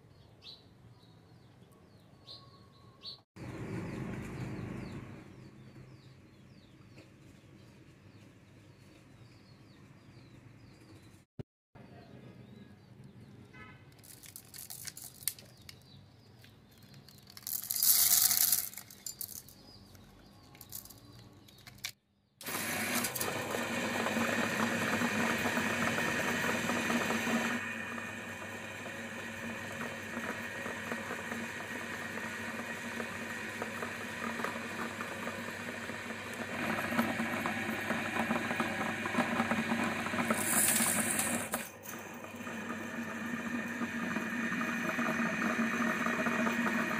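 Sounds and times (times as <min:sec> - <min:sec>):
glass jars being crushed: 0:14.0 - 0:15.8
meat grinder motor hum: 0:22.4 - 0:46.9.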